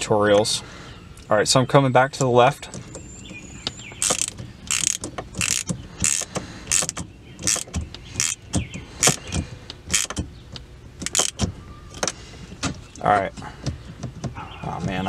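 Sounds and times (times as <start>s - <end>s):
hand ratchet clicking: 4.0s - 10.3s, 11.0s - 11.4s.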